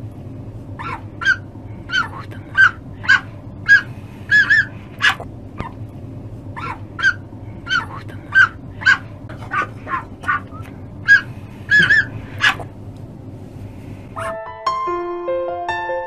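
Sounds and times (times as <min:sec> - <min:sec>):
fox yipping: 0:00.8 - 0:05.8, 0:06.6 - 0:12.7, 0:14.2 - 0:14.4.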